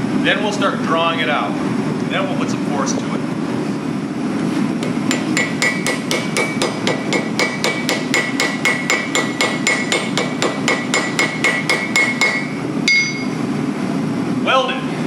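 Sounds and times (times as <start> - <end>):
anvil ringing: 4.8 - 13.4
hammer striking metal on anvil: 4.8 - 13.4.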